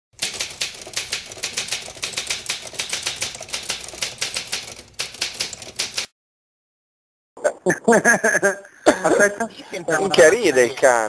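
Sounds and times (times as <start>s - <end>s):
typewriter keys clacking: 0.2s - 6.1s.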